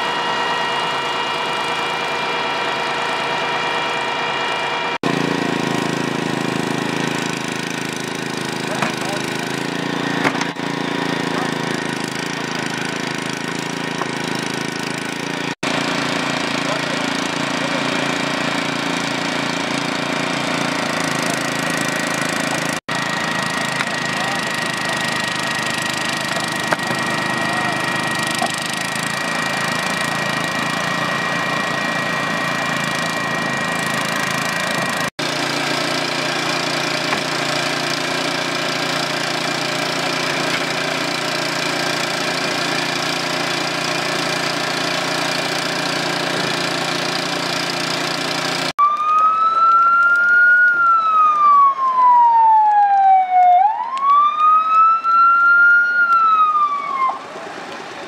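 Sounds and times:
siren wailing: 0.0 - 5.0, 22.9 - 35.0, 48.8 - 57.6
small engine running: 0.0 - 52.1.

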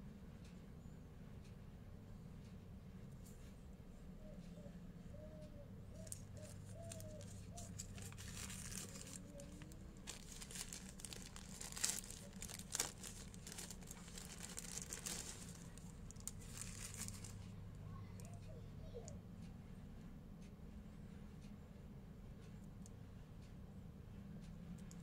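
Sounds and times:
paper wrapping crinkling: 6.0 - 17.4
sharp paper crackles: 6.0 - 17.4.

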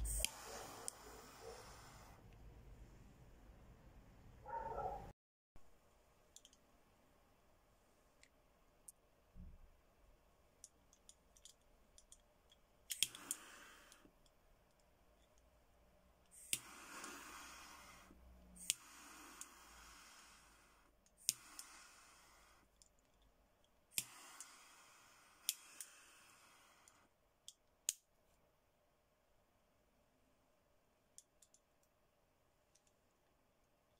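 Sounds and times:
torch lighter flame hissing: 0.0 - 2.2, 12.9 - 14.1, 16.3 - 22.7, 23.9 - 27.1
lighter ignition click: 18.6 - 20.5, 24.0 - 27.0.

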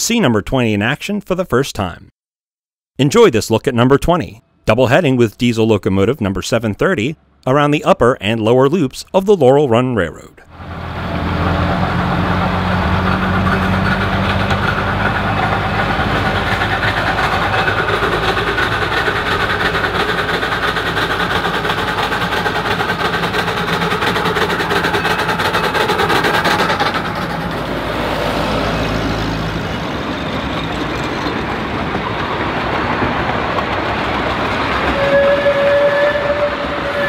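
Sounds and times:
locomotives running past: 10.5 - 37.0
railway cars rolling on rails: 10.5 - 37.0.

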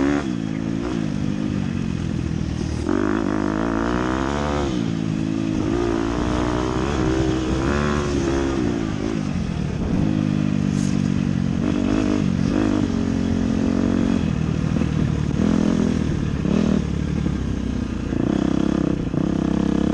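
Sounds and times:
dirt bike engine revving: 0.0 - 19.9
rushing air: 1.2 - 4.0, 4.6 - 17.2.

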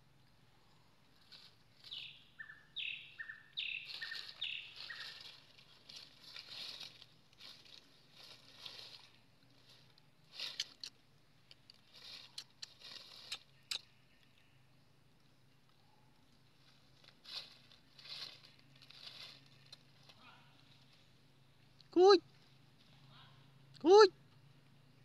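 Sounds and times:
dry leaves rustling: 1.0 - 14.4, 15.4 - 23.6
bird calling: 1.8 - 5.6.

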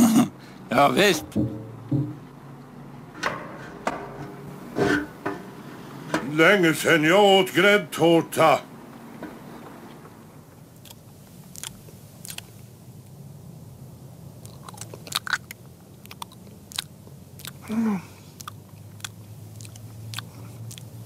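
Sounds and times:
wet chewing and smacking: 10.8 - 12.6, 14.4 - 21.0.

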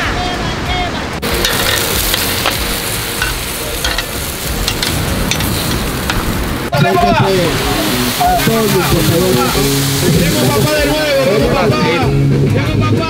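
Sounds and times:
fat popping and crackling: 1.2 - 6.7
sausages sizzling on grill: 1.2 - 12.1.

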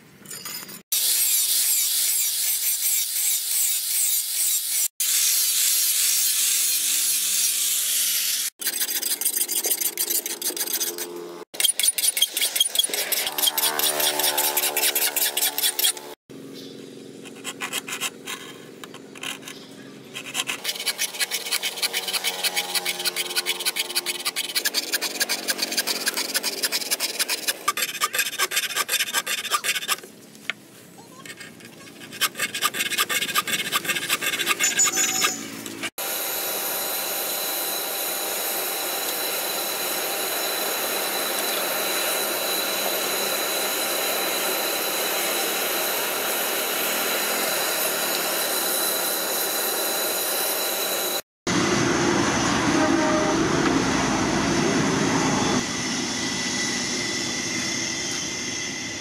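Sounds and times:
file rasping on steel blade: 8.6 - 16.2, 17.2 - 30.1, 31.1 - 35.9.

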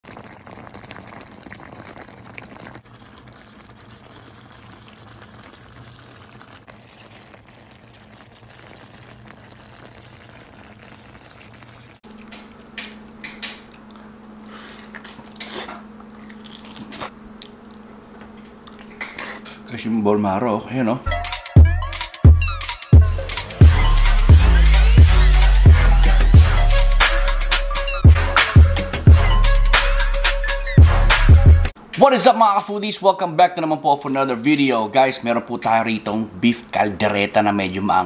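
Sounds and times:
stew simmering and bubbling: 0.0 - 29.3
person chewing and smacking: 12.1 - 19.5.

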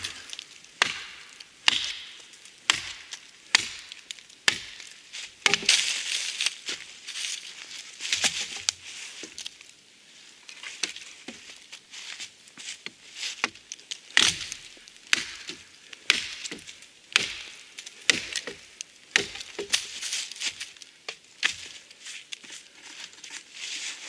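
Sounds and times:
hatchet chopping wood: 0.0 - 5.9, 13.4 - 20.0.

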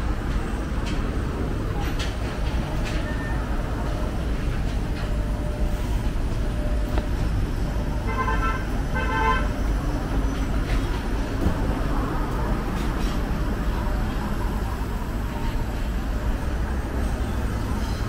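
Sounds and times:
buses running: 0.0 - 18.0
street traffic rumble: 0.0 - 18.0.

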